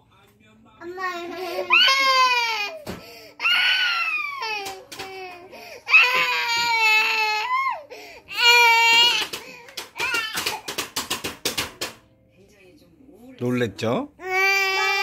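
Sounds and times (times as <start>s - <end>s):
baby crying: 0.9s - 10.8s, 14.2s - 15.0s
baby gasping for breath: 2.9s - 3.4s, 5.5s - 5.9s, 7.8s - 8.3s.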